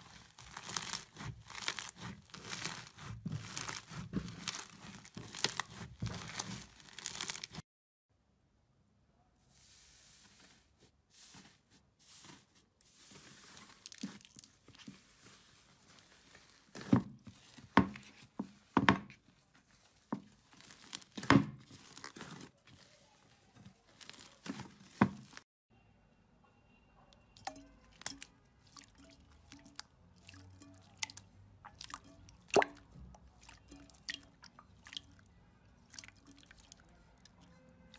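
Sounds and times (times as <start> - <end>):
slime crinkling and popping: 0.0 - 7.6, 13.0 - 18.1, 19.7 - 25.4, 27.4 - 37.9.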